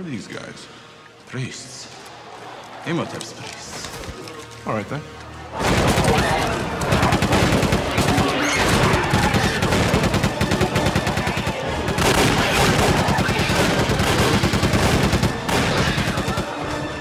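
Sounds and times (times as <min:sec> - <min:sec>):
rapid handgun gunfire: 0:05.6 - 0:16.8.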